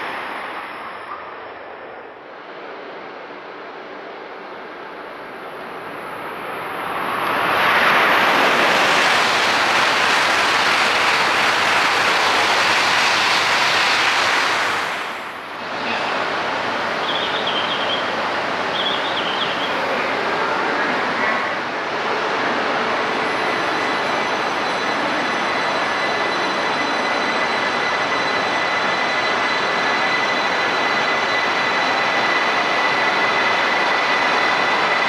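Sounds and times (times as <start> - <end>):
high-speed train rushing past: 0.0 - 35.0
quieter train noise: 0.0 - 35.0.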